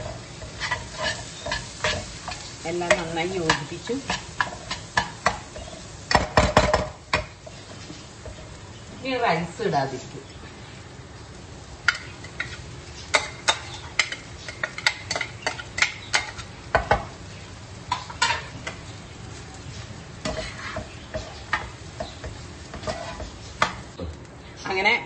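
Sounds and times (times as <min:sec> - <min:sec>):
utensils scraping frying pan: 0:00.0 - 0:08.6, 0:11.8 - 0:17.1, 0:17.9 - 0:18.9, 0:19.7 - 0:23.9
low sizzle from pan: 0:00.0 - 0:25.0.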